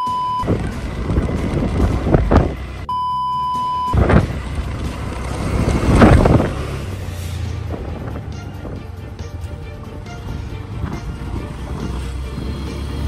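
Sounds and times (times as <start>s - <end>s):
censor beep tone: 0.0s - 0.5s, 2.9s - 4.0s
motorbike riding: 0.0s - 13.0s
wind buffeting microphone: 0.4s - 2.8s, 5.3s - 8.9s.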